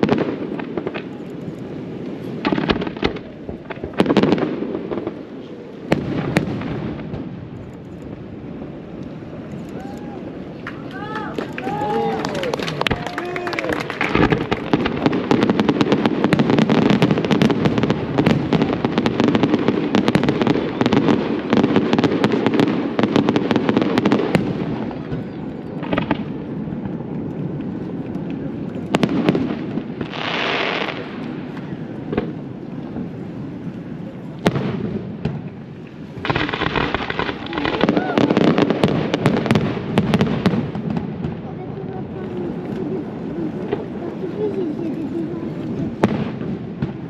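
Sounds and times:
fireworks bangs and crackles: 0.0s - 47.0s
firework hiss: 28.9s - 33.5s, 34.2s - 41.4s.

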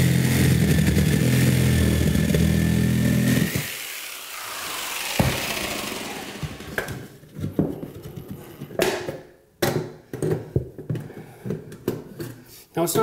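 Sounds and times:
power saw running: 0.0s - 7.2s.

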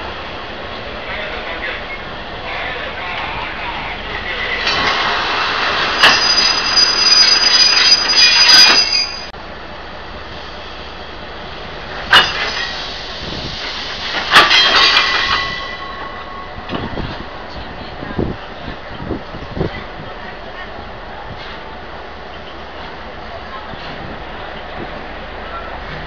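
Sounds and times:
train coaches rolling on rails: 0.0s - 26.0s
train wheels squealing: 6.0s - 9.3s.

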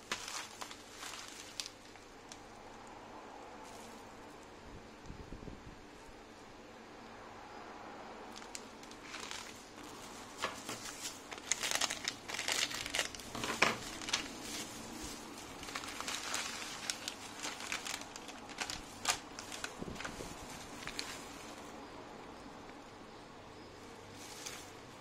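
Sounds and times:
plastic packet crinkling: 0.0s - 2.5s, 8.3s - 21.8s.

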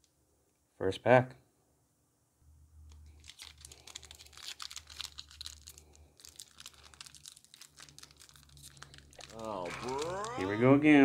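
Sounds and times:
foil wrapper crinkling: 3.0s - 10.4s.

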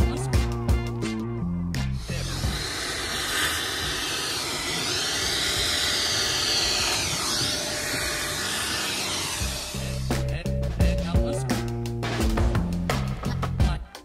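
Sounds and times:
vacuum cleaner running: 2.0s - 10.2s.

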